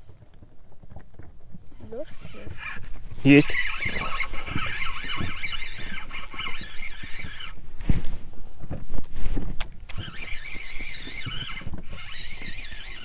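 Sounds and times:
wind buffeting microphone: 0.0s - 13.0s
fishing reel gears whining: 2.0s - 7.6s, 9.9s - 13.0s.

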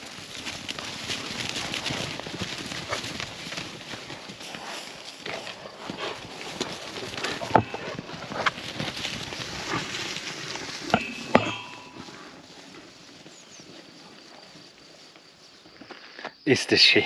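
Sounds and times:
hoofbeats on paving and grass: 0.0s - 17.0s
sharp knocks: 11.0s - 11.7s.

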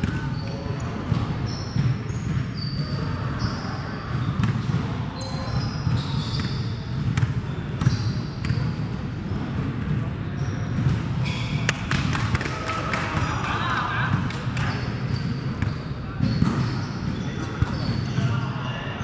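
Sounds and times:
basketball bouncing on court: 0.0s - 8.9s, 9.8s - 18.2s
sneakers squeaking on floor: 0.0s - 8.9s, 9.8s - 12.0s, 13.1s - 19.0s
hum of echoing sports hall: 0.0s - 19.0s
players' voices: 7.0s - 19.0s.

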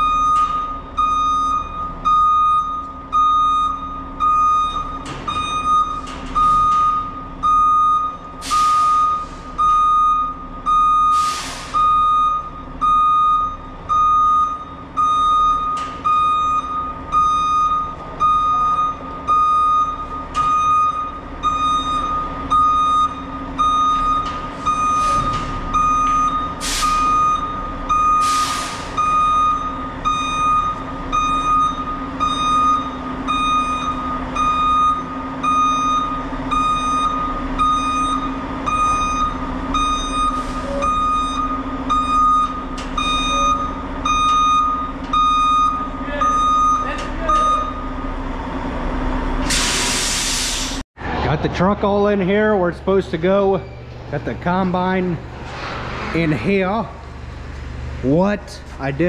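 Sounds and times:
reversing alarm beeping: 0.0s - 50.6s, 52.9s - 55.2s
diesel engine running: 0.0s - 59.0s
short hisses: 49.5s - 50.8s.

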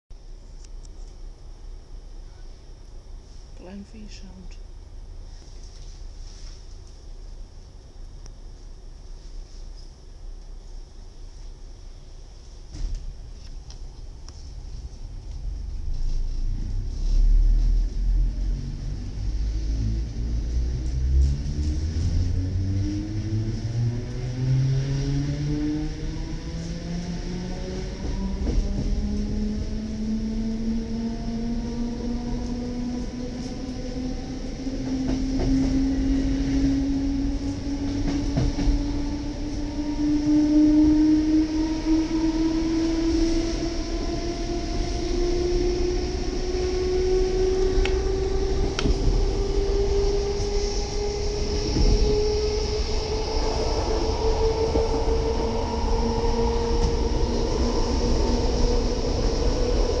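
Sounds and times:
wheels rumbling on track: 0.2s - 60.0s
traction motors whining: 41.8s - 60.0s.

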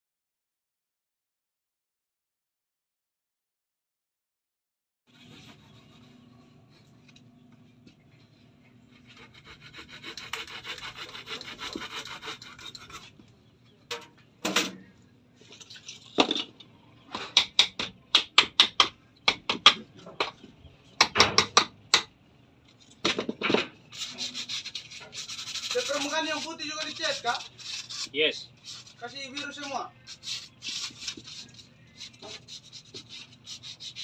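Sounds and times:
hand saw cutting wood: 9.0s - 13.2s, 23.9s - 34.0s.

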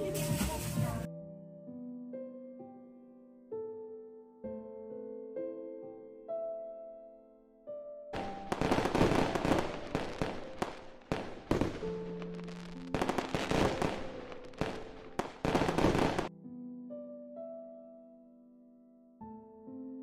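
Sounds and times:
fireworks bursting and crackling: 8.2s - 16.3s
fireworks sharp bangs: 8.2s - 16.3s.

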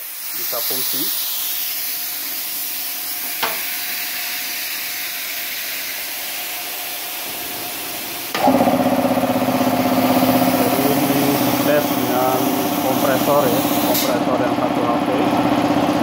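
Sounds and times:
steady hiss: 0.0s - 8.4s
air compressor running: 0.0s - 16.0s.

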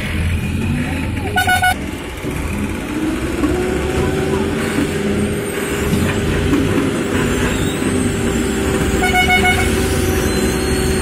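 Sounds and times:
crane diesel engines running: 0.0s - 11.0s
horn pulsing: 1.3s - 1.8s, 8.8s - 10.1s.

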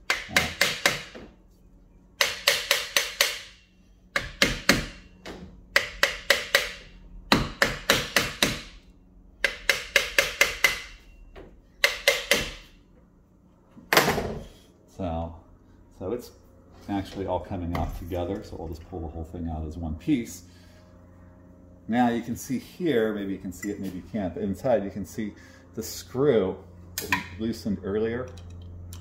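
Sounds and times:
hammer tapping on metal: 2.2s - 8.7s, 9.4s - 11.0s, 11.8s - 12.6s.

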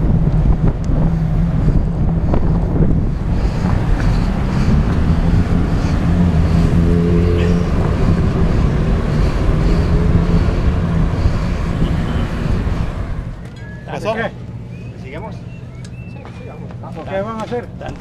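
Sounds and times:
wind on microphone: 0.0s - 13.4s
car traffic: 0.0s - 18.0s.

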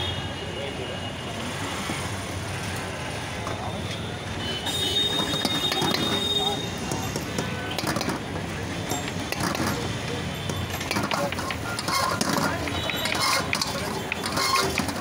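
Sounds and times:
metal ladle scraping a wok: 10.9s - 15.0s.

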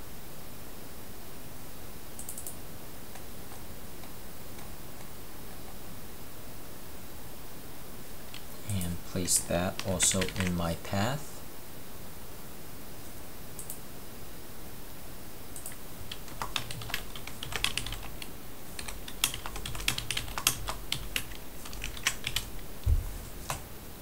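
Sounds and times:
computer keyboard typing: 8.3s - 10.8s, 15.6s - 23.7s.

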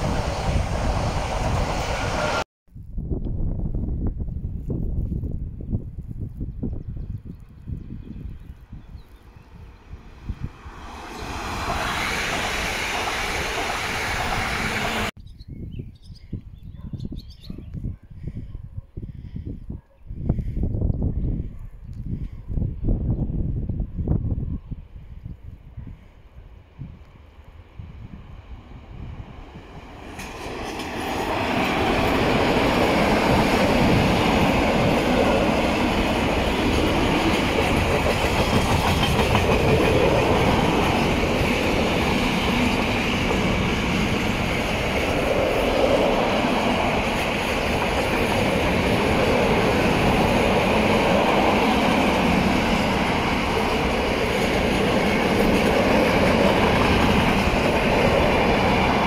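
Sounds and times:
freight train passing: 0.0s - 2.5s, 8.7s - 15.1s, 25.8s - 59.0s.

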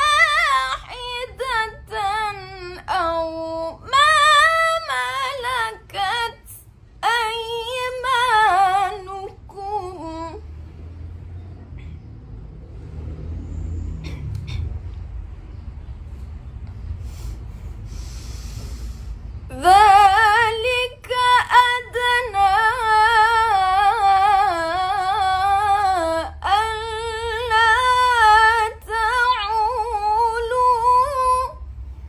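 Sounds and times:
woman chanting melodically: 0.0s - 10.4s, 19.5s - 31.6s
low steady rumble: 0.0s - 32.0s.

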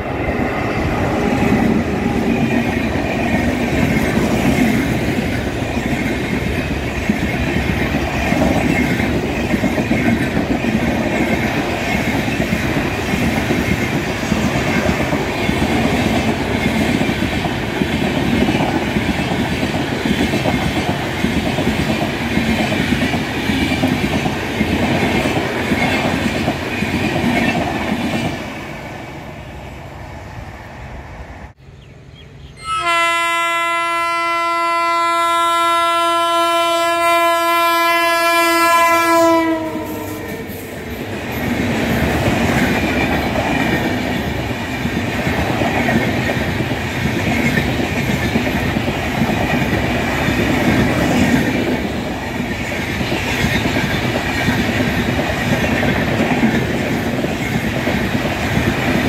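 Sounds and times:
train wheels clattering over rail joints: 1.2s - 28.5s.

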